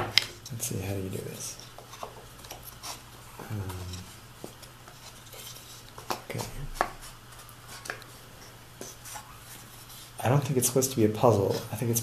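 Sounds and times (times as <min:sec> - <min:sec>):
wooden rubbing: 0:00.0 - 0:08.0.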